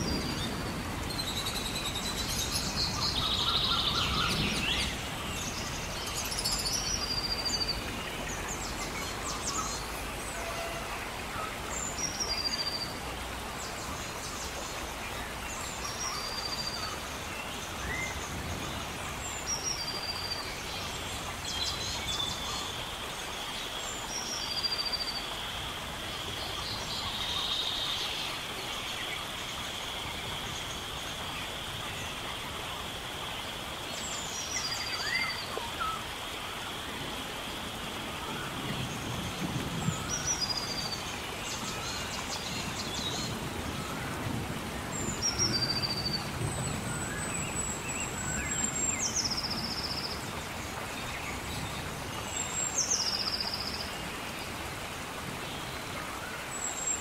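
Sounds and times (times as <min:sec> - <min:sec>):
birds calling: 0:00.0 - 0:12.9
rain hiss: 0:00.0 - 0:57.0.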